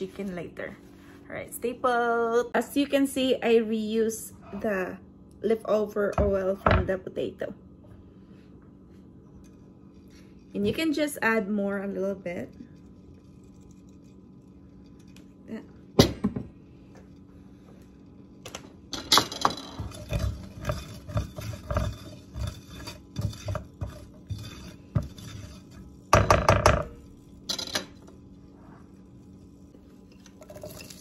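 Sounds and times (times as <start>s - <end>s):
utensil clattering on metal: 18.9s - 28.2s
spatula scraping a metal pan: 19.7s - 27.5s.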